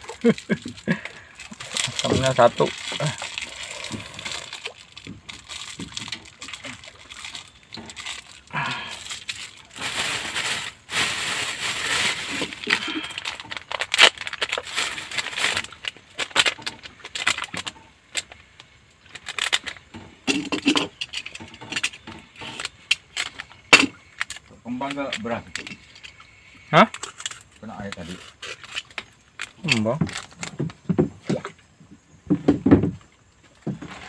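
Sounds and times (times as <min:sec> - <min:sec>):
plastic packet crinkling: 0:00.0 - 0:18.4, 0:19.1 - 0:19.8.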